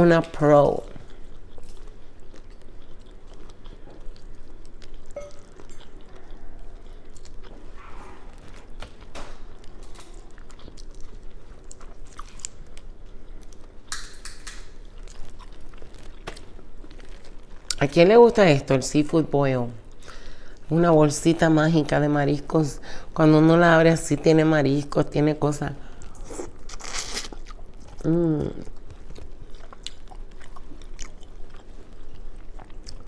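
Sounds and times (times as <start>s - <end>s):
chewing and biting: 1.0s - 17.8s, 26.0s - 33.0s.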